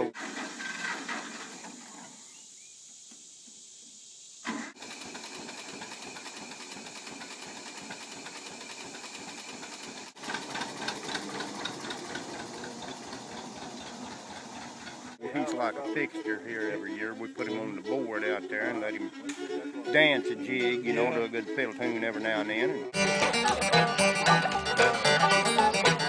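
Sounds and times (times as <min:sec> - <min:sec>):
faint hiss: 0:00.0 - 0:04.8
tractor engine running: 0:04.8 - 0:15.2.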